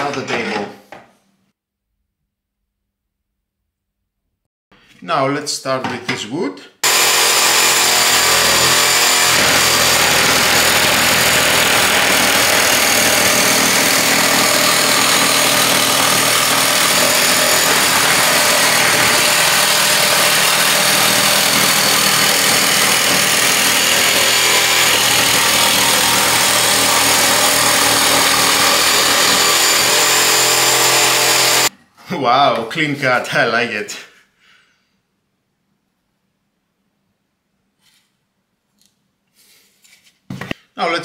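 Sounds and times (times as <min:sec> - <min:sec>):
jigsaw sawing chipboard: 0:06.8 - 0:31.7.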